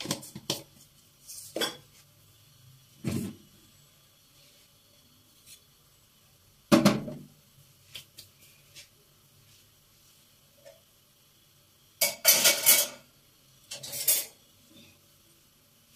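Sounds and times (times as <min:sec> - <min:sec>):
metallic pot clank: 0:12.0 - 0:13.1.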